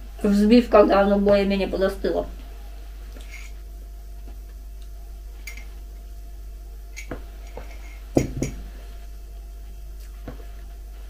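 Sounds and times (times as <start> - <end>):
mug knocking on table: 8.2 - 8.6.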